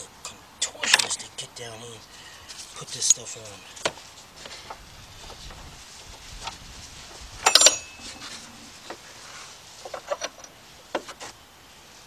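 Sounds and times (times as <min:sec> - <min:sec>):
metal clank ringing: 0:07.4 - 0:08.4.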